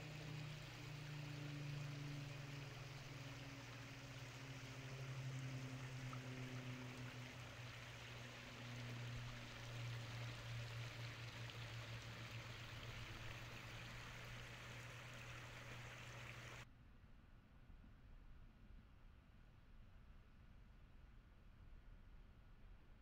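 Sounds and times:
running water hissing: 0.0 - 16.6
constant low hum: 0.0 - 23.0.

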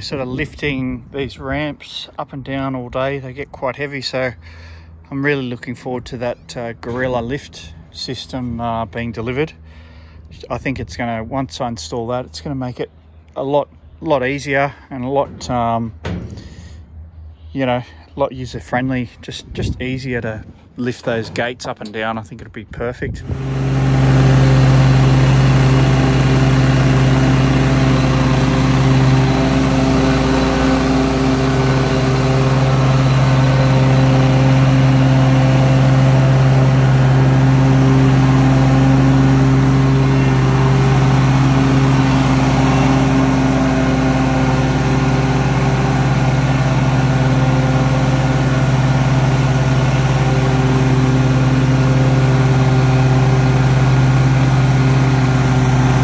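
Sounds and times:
mower engine running: 23.2 - 56.0.

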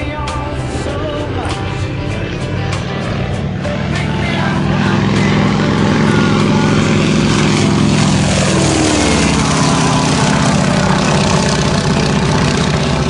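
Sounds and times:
propeller plane flying past: 0.0 - 13.0.

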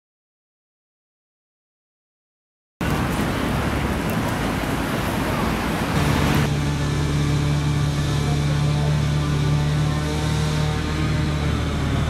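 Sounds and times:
city street traffic: 2.8 - 12.0
steady low hum with tones: 2.8 - 12.0.

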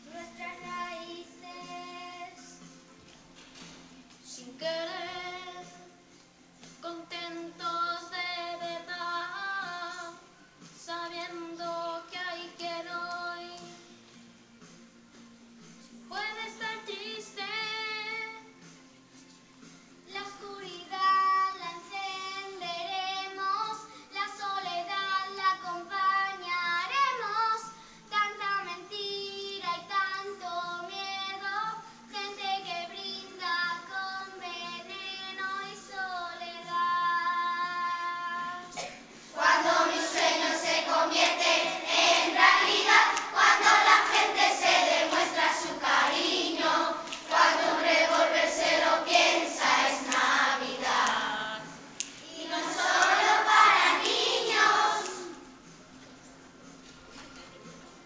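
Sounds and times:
children singing into microphones: 28.9 - 55.5
children's choir singing: 35.5 - 55.5.

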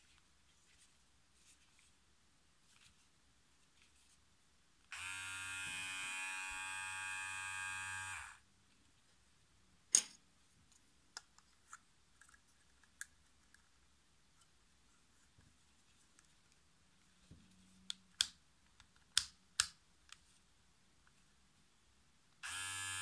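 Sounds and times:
hair clipper buzzing: 4.9 - 8.4, 22.4 - 23.0.

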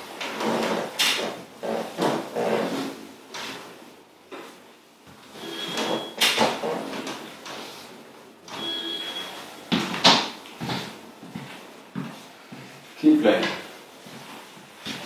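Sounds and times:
short high squeak: 5.4 - 6.3, 8.5 - 9.4.

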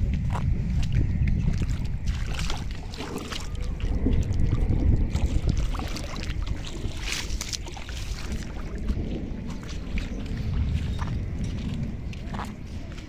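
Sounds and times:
wind buffeting microphone: 0.0 - 13.0
flood water rushing: 1.7 - 11.1.

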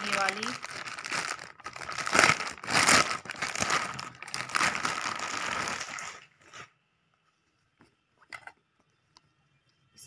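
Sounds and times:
plastic bag crinkling: 0.0 - 6.7.

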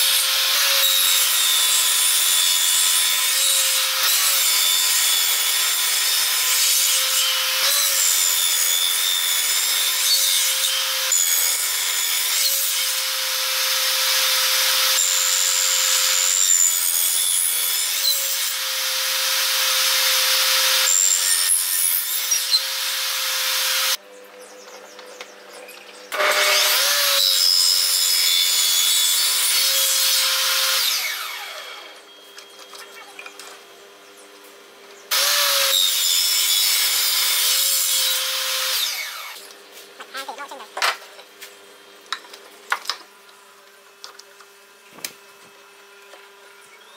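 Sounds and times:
table saw cutting wood: 0.0 - 24.0, 26.1 - 32.2, 35.1 - 41.6
steady saw whine: 26.1 - 32.5, 35.1 - 40.6.

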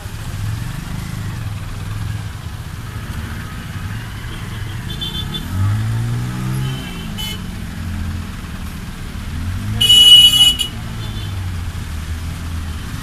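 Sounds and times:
vehicle engines running: 0.0 - 13.0.

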